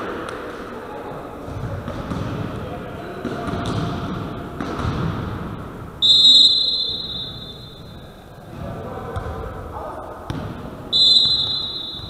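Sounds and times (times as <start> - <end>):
sports hall noise: 0.0 - 12.0
referee's whistle blast: 6.0 - 7.9, 10.9 - 12.0.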